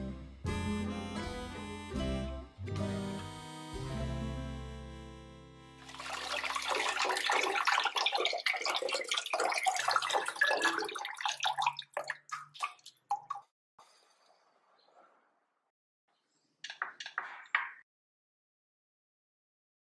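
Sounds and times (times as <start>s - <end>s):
water drips: 5.8s - 13.5s.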